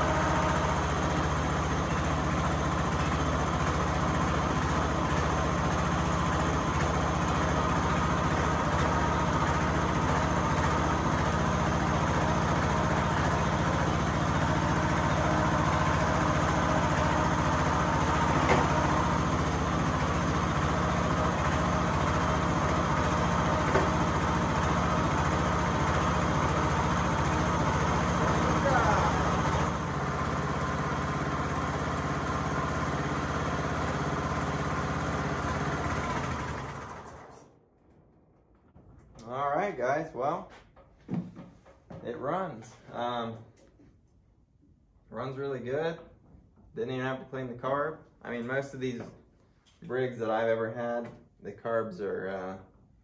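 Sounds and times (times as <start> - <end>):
lawn tractor engine running: 0.0 - 39.4.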